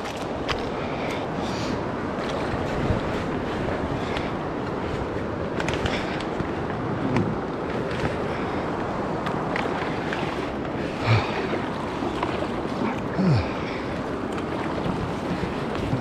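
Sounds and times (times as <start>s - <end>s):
river water rushing: 0.0s - 16.0s.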